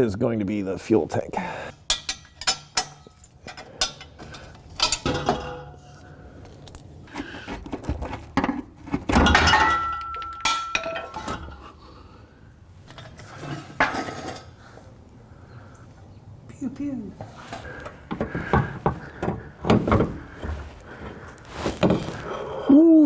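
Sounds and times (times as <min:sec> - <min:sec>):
metal wrenches clinking: 0:01.7 - 0:06.0, 0:09.2 - 0:11.8, 0:12.8 - 0:14.6.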